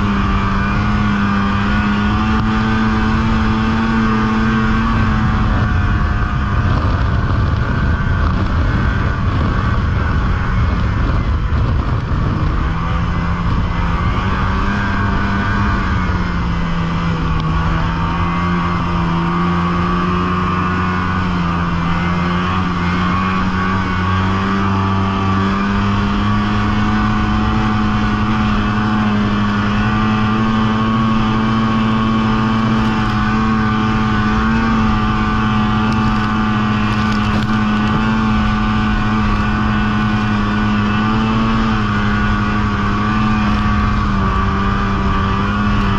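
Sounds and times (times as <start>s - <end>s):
snowmobile engine droning: 0.0s - 45.9s.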